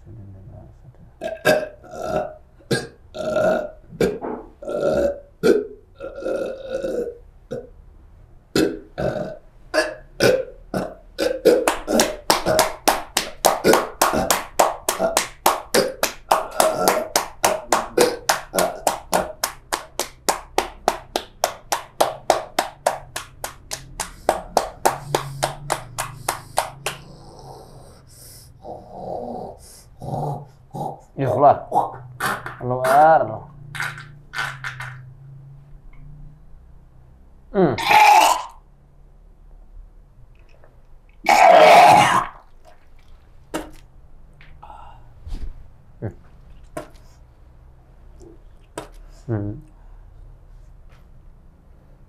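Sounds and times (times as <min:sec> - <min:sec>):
person belching and retching: 0:01.2 - 0:07.8, 0:08.5 - 0:12.8, 0:13.5 - 0:19.4, 0:24.1 - 0:33.2, 0:37.6 - 0:38.6, 0:41.2 - 0:43.8.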